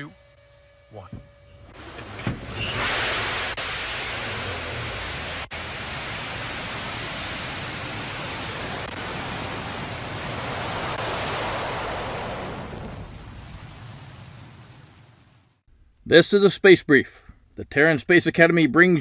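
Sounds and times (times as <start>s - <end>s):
rocket engine roar: 0.9s - 14.9s.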